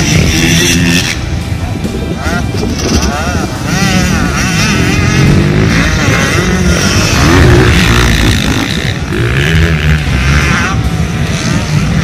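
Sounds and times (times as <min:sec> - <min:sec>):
wind buffeting microphone: 0:00.0 - 0:09.1
dirt bikes revving: 0:00.0 - 0:12.0.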